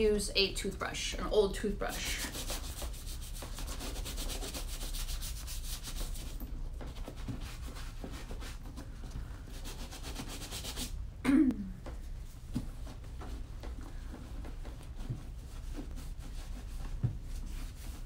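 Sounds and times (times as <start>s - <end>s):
bristle brush scrubbing leather: 1.8s - 8.7s, 9.5s - 10.9s, 14.3s - 18.0s.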